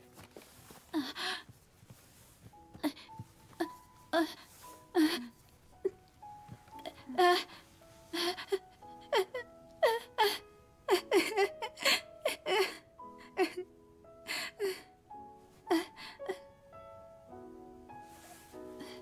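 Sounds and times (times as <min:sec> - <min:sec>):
soft sustained music: 0:00.0 - 0:19.0
person sobbing and whimpering: 0:00.9 - 0:01.5, 0:02.8 - 0:06.1, 0:06.7 - 0:13.7, 0:15.7 - 0:16.5.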